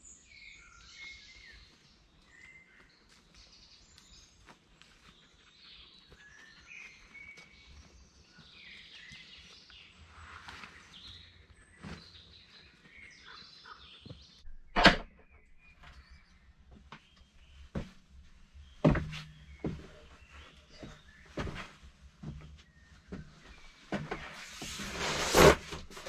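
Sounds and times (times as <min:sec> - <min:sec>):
birds calling and singing: 0:00.0 - 0:24.3
faint footsteps on forest floor: 0:01.2 - 0:14.4, 0:15.7 - 0:24.9
loud thump: 0:14.7 - 0:15.2.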